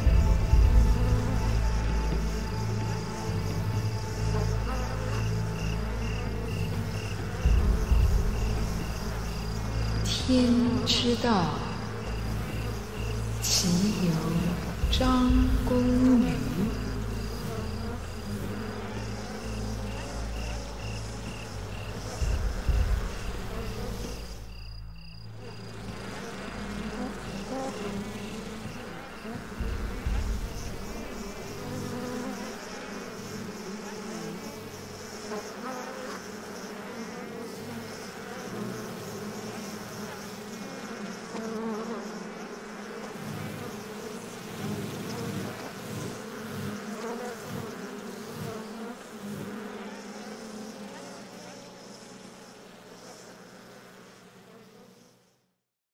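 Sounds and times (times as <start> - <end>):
bees buzzing: 0.0 - 55.2.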